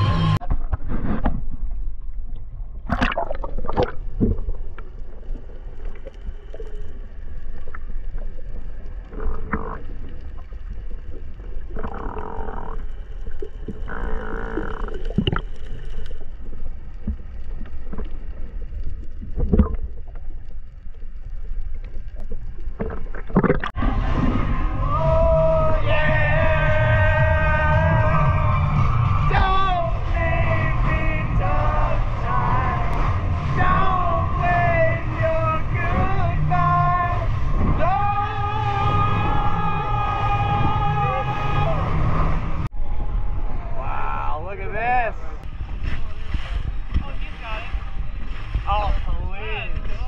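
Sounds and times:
music: 0:00.0 - 0:00.4, 0:23.8 - 0:37.6
bubbling: 0:00.4 - 0:24.4
muffled underwater water rumble: 0:00.4 - 0:50.0.

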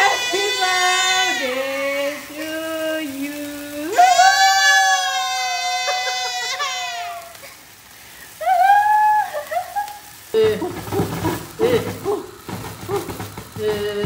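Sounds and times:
toddler wailing: 0:00.0 - 0:01.8, 0:03.9 - 0:07.5
sparkler fizzing and crackling: 0:00.0 - 0:14.0.

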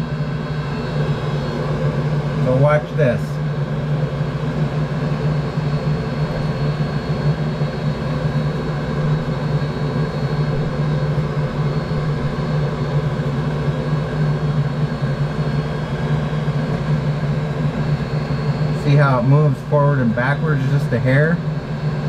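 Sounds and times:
heater humming with low drone: 0:00.0 - 0:22.0.

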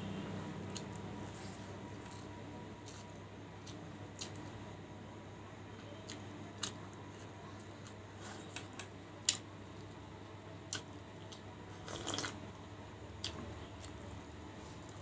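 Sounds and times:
slurping soup: 0:11.8 - 0:12.4.

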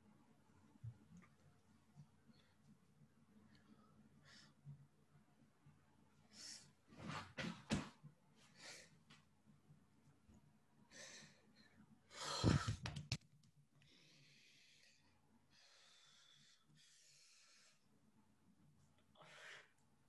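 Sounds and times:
man breathing hard: 0:13.9 - 0:17.9.

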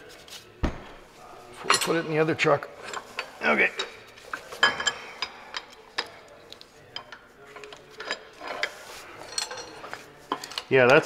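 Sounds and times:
metal parts clicking and clinking: 0:02.8 - 0:11.0.

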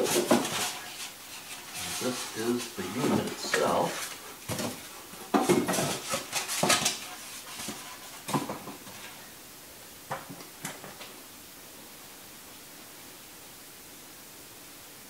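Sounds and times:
rustles and knocks of unpacking: 0:00.0 - 0:09.2.

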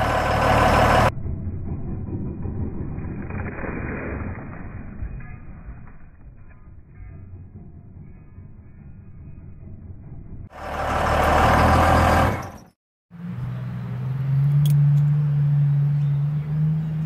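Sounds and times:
loud diesel engine revving: 0:00.0 - 0:01.1, 0:10.5 - 0:17.0
engine idle drone: 0:00.0 - 0:17.0.

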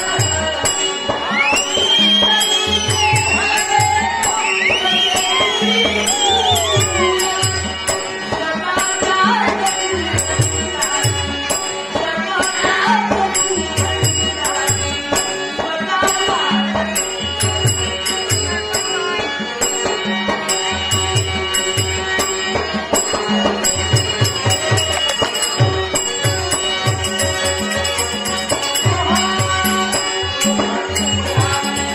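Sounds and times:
harmonium holding tones: 0:00.0 - 0:31.9
hand drum beating: 0:20.3 - 0:31.9
bell-like metal strikes: 0:20.5 - 0:31.9.

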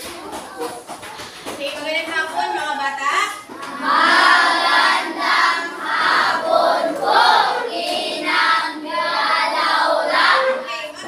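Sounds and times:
children singing in unison: 0:03.6 - 0:11.0.

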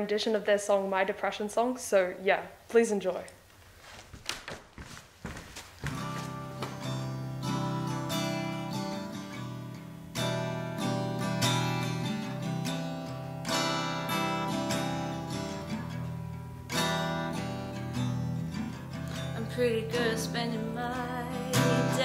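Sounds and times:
acoustic guitar strumming: 0:05.9 - 0:22.0.

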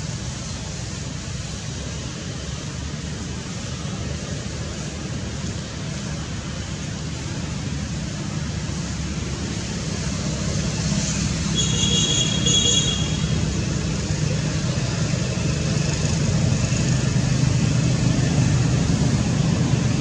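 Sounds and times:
low rumbling noise: 0:13.5 - 0:20.0.

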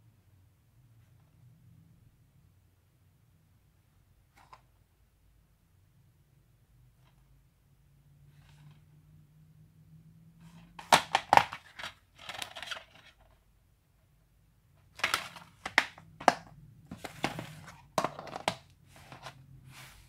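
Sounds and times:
plastic cases clacking on wood: 0:10.8 - 0:13.0, 0:15.0 - 0:19.4
cases sliding and scraping: 0:15.0 - 0:20.0.

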